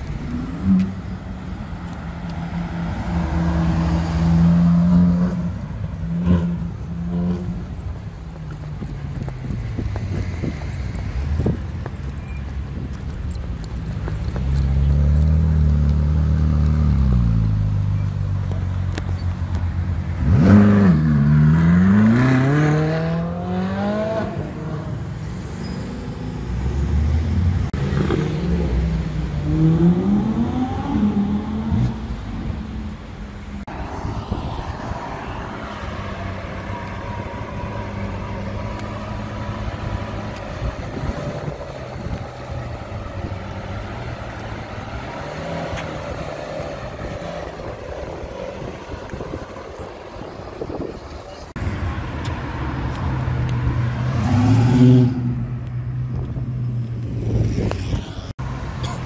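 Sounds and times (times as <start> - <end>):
car engine revving with upshifts: 0.0 - 7.7, 20.1 - 25.1, 25.7 - 32.9, 33.6 - 58.3.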